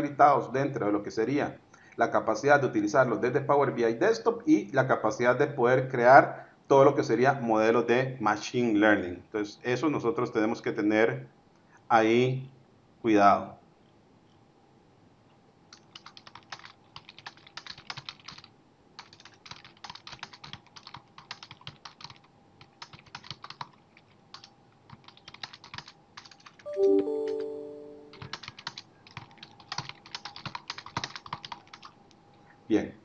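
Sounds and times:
keyboard typing: 0:15.7 - 0:32.0
short electronic chime: 0:26.7 - 0:28.3.

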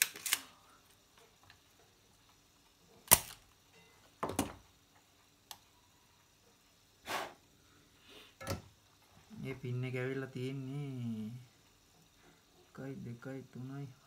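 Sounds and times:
desoldering pump snap: 0:03.0 - 0:03.4.

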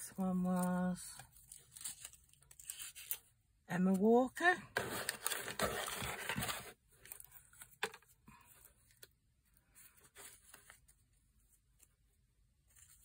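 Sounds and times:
paper rustling: 0:00.5 - 0:03.3, 0:04.7 - 0:13.0
hands rummaging in cardboard box: 0:04.7 - 0:08.0.

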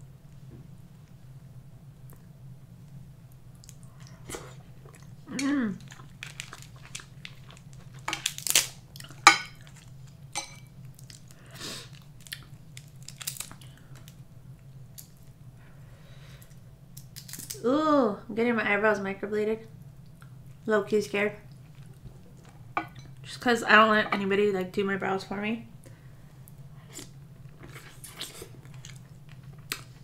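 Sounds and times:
chewing: 0:05.8 - 0:08.1
crab shell cracking: 0:05.8 - 0:10.0, 0:10.9 - 0:14.2.

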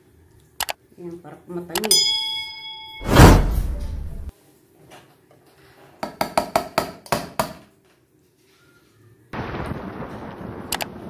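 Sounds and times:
brief rushing noise: 0:03.0 - 0:04.3.

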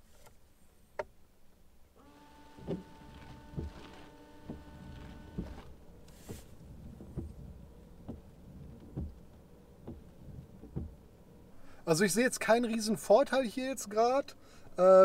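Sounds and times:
windscreen washer pump whining: 0:02.0 - 0:11.9
wipers knocking on glass: 0:08.9 - 0:09.2, 0:09.8 - 0:11.0.

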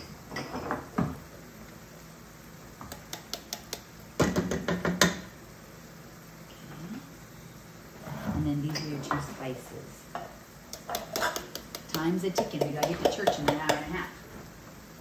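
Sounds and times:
cans knocking on metal pot: 0:03.1 - 0:05.3, 0:10.7 - 0:14.0.

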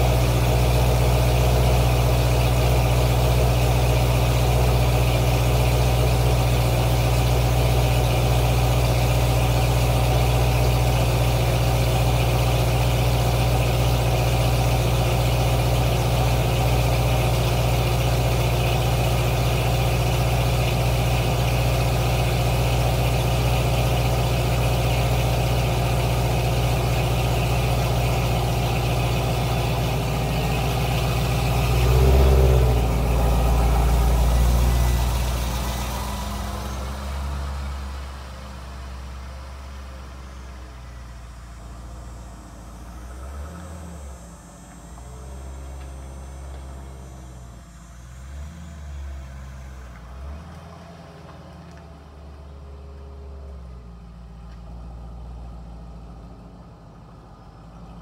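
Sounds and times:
engine revving: 0:00.0 - 0:38.4
car engine idling: 0:00.0 - 0:58.0.

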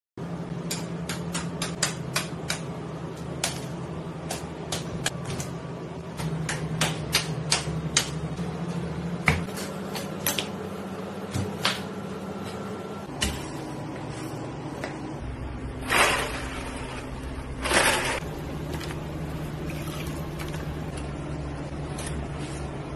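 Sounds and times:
low hum: 0:10.6 - 0:22.9.

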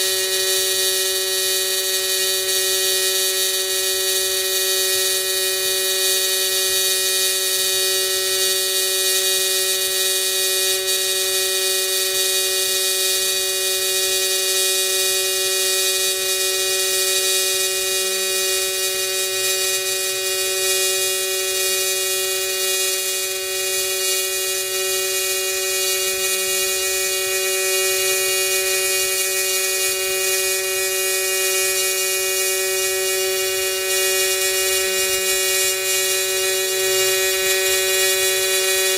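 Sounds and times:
welding arc buzzing: 0:00.0 - 0:38.9.

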